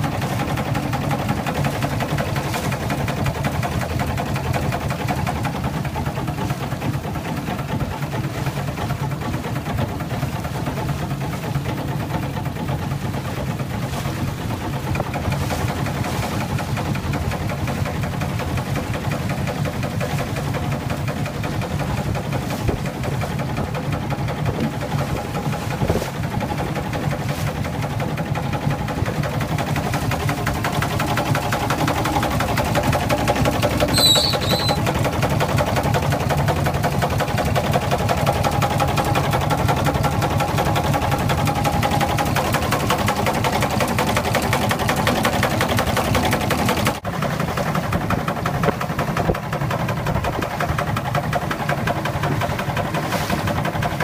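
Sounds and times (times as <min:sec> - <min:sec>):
steam engine running: 0:11.2 - 0:54.0
short high-pitched chirp: 0:33.9 - 0:34.8.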